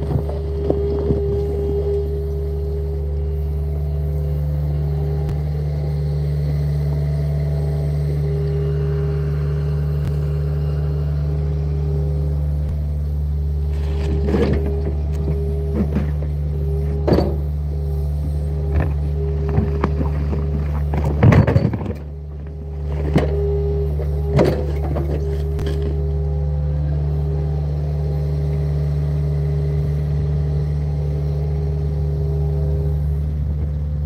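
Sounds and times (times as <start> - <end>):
diesel engine running: 0.0 - 34.0
hydraulic whine: 0.0 - 34.0
bucket scraping dirt and rock: 13.7 - 17.4, 18.6 - 26.0.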